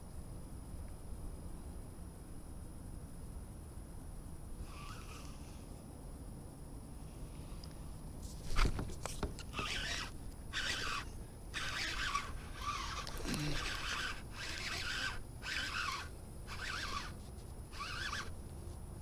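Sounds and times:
fishing reel gears whirring: 4.6s - 5.5s, 9.4s - 18.4s.

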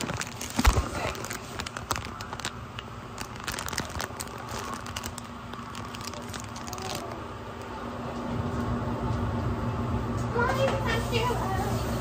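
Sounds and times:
rustling and crinkling: 0.0s - 8.7s
steady low hum: 0.0s - 10.4s.

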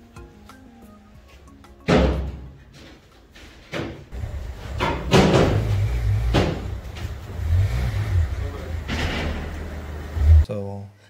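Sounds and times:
loud knocks and slams: 1.9s - 2.5s, 3.6s - 10.2s.

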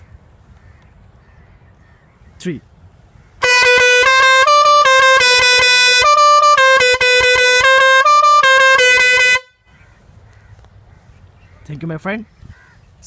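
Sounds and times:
musical air horn blaring a tune: 3.4s - 9.6s.

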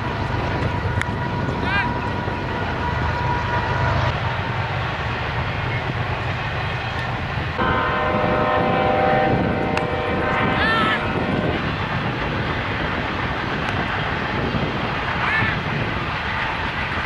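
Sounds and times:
steady low rumble: 0.0s - 17.0s
horn sounding a steady chord: 7.6s - 11.6s.

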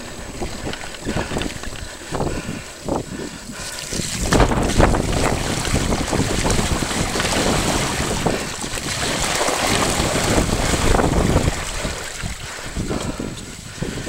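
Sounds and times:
wind buffeting microphone: 0.0s - 14.0s
bike tyres splashing through mud: 3.6s - 13.4s.

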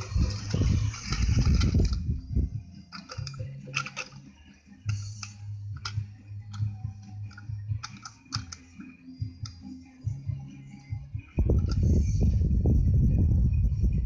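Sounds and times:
plastic toy train clicks and rattles: 0.0s - 2.1s, 2.8s - 9.6s, 11.4s - 12.0s.

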